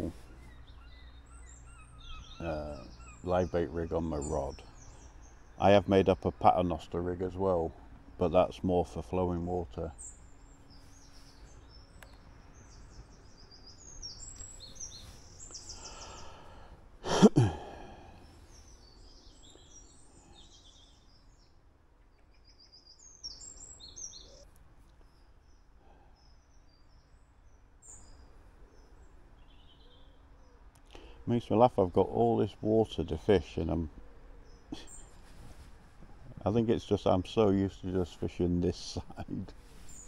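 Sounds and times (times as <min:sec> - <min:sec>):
small birds chirping: 0:00.0 - 0:40.0
man sighing: 0:15.7 - 0:18.4.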